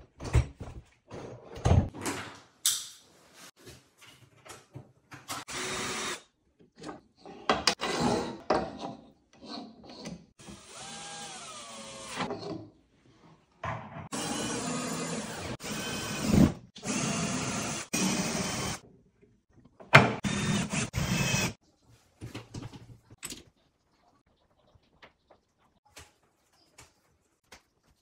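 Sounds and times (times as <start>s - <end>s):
power drill running: 5.4s - 6.2s, 10.4s - 12.3s, 14.1s - 18.8s, 20.2s - 21.5s.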